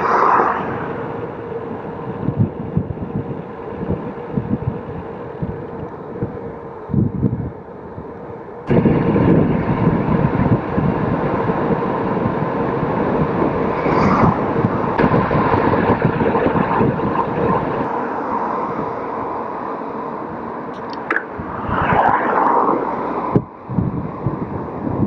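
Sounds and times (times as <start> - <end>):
car passing close by: 0.0 - 1.3, 13.5 - 16.2, 21.0 - 23.7
bike tyres on paved road: 0.0 - 25.0
wind rushing over microphone: 0.0 - 25.0.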